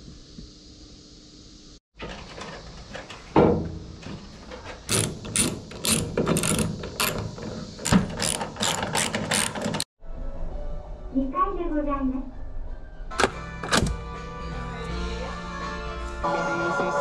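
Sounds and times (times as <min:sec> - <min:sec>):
loud clunk: 0:02.0 - 0:05.4
ratchet wrench clicking: 0:04.9 - 0:09.9.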